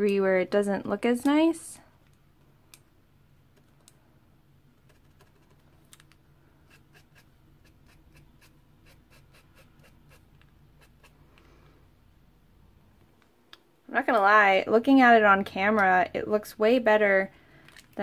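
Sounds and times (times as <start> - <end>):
pen tapping and scratching on paper: 4.8 - 5.7.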